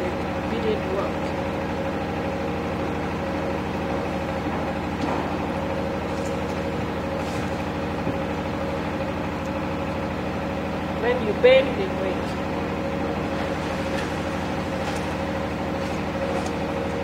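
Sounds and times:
engine idling hum: 0:00.0 - 0:17.0.

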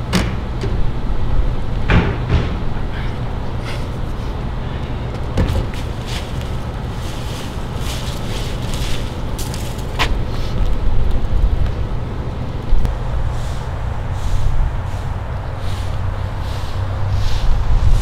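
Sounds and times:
low outdoor rumble: 0:00.0 - 0:18.0
rustles and scuffs: 0:05.1 - 0:10.8, 0:13.2 - 0:18.0
sharp scrape: 0:13.3 - 0:18.0.

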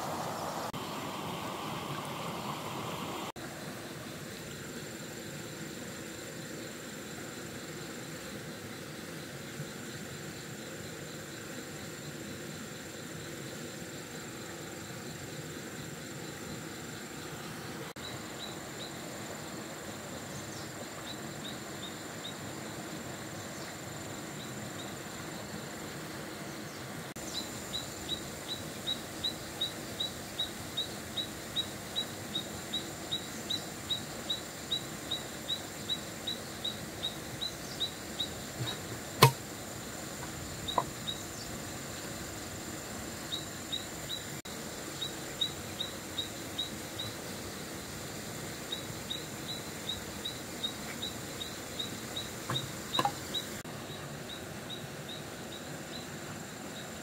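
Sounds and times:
insect drone: 0:00.0 - 0:57.0
sharp click: 0:39.2 - 0:39.4.

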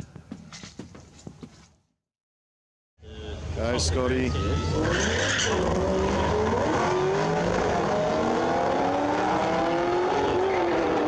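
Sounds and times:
cars accelerating hard: 0:04.4 - 0:11.0.

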